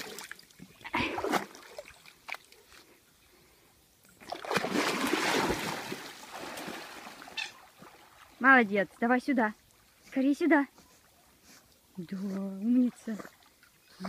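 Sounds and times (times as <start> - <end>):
dog splashing through water: 4.2 - 8.3.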